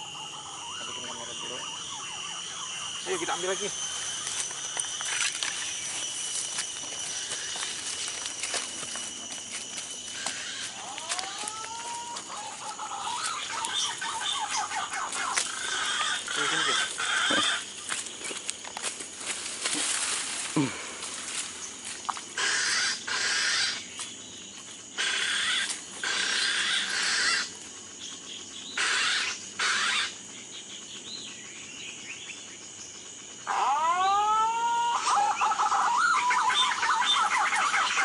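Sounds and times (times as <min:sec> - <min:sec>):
animal chattering calls: 0:00.0 - 0:06.2, 0:10.0 - 0:18.0, 0:22.3 - 0:23.9, 0:25.0 - 0:30.4, 0:33.4 - 0:38.0
animal calls: 0:00.0 - 0:09.1, 0:09.9 - 0:18.4, 0:22.1 - 0:23.9, 0:25.0 - 0:31.3, 0:33.4 - 0:38.0
rustling through undergrowth: 0:03.7 - 0:22.4.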